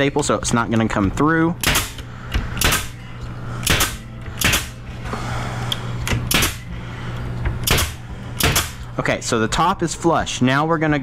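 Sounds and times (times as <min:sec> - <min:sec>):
pneumatic stapler firing: 0:01.6 - 0:03.0, 0:03.6 - 0:04.8, 0:06.0 - 0:06.6, 0:07.6 - 0:08.8.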